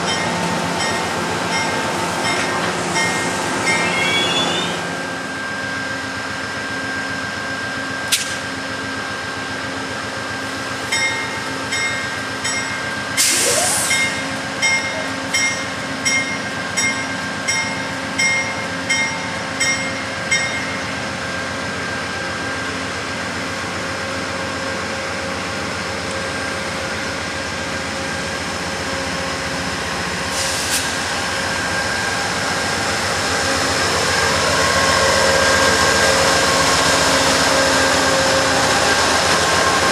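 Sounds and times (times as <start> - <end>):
locomotive bell ringing: 0.0 - 4.7, 10.9 - 13.1, 13.9 - 21.0
diesel locomotive engine hum: 0.0 - 39.9.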